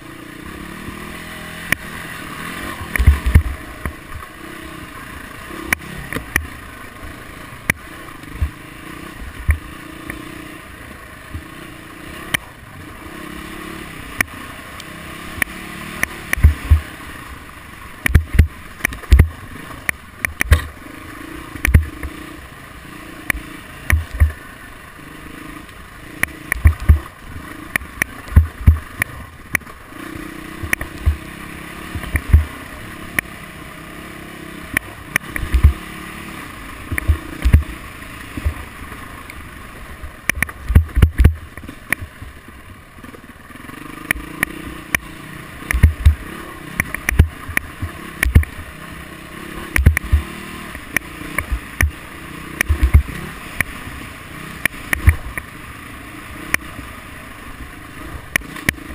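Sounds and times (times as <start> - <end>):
off-road vehicle engine revving: 0.0 - 42.3, 43.0 - 58.9
loud low thumps over bumps: 3.0 - 3.6, 16.3 - 16.9, 18.0 - 19.4, 21.6 - 22.0, 23.9 - 24.4, 26.5 - 27.1, 28.3 - 29.0, 32.0 - 32.5, 35.4 - 35.8, 36.9 - 37.8, 40.4 - 42.1, 45.7 - 46.2, 46.8 - 48.6, 49.8 - 50.3, 52.6 - 53.2.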